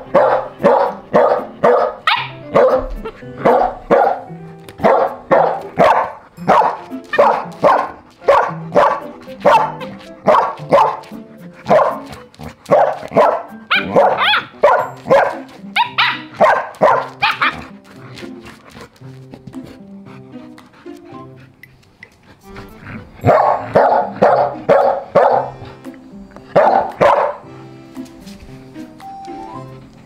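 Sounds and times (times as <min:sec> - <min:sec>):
dog barking: 0:00.0 - 0:17.7, 0:23.2 - 0:25.6, 0:26.5 - 0:27.4.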